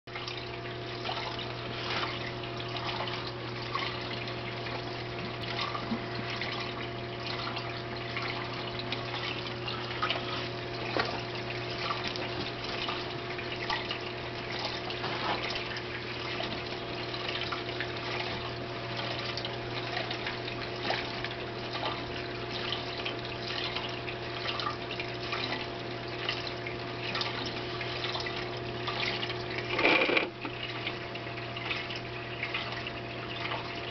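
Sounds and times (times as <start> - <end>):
pumps humming: 0.1 - 33.9
water trickling and splashing: 0.1 - 33.9.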